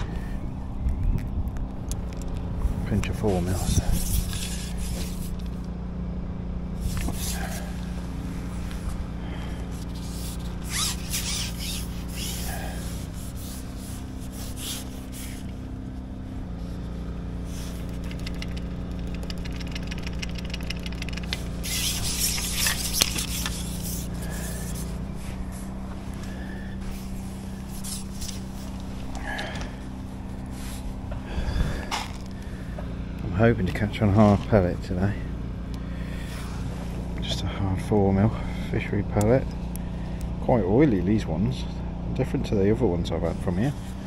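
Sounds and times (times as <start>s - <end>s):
jet washer motor hum: 2.4s - 39.2s
hissing spray bursts: 21.4s - 25.0s.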